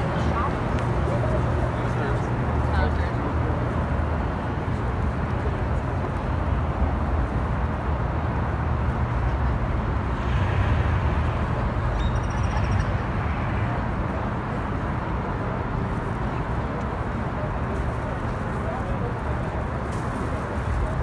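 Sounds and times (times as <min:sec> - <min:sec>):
traffic noise with low rumble: 0:00.0 - 0:21.0
high-pitched chirp: 0:11.9 - 0:13.0.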